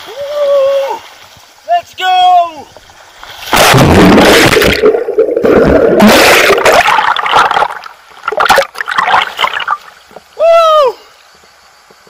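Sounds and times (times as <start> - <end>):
water splashing and gurgling: 2.9 - 10.1.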